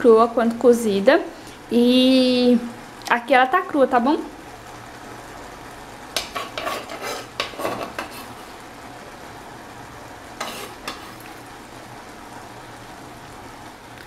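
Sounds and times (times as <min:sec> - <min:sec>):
knife scraping on wooden board: 0:06.2 - 0:08.4, 0:10.4 - 0:11.2.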